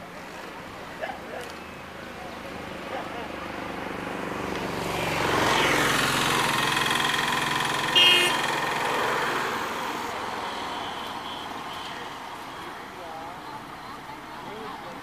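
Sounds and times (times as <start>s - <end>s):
vehicle passing by: 2.3s - 13.0s
short horn beep: 7.9s - 8.5s.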